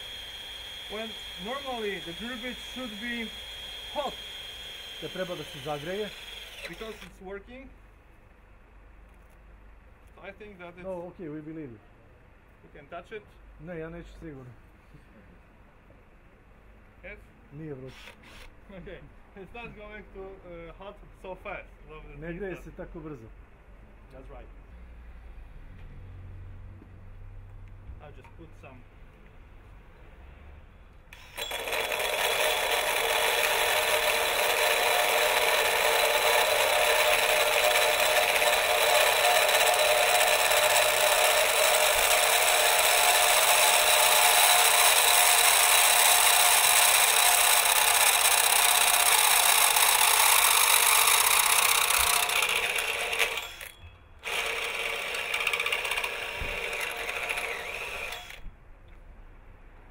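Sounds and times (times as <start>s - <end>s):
hole saw cutting metal pipe: 0.0s - 7.1s, 31.2s - 58.4s.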